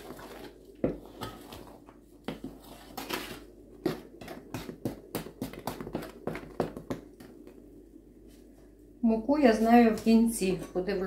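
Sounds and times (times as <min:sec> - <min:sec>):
spoon scraping metal basin: 0:00.0 - 0:01.8.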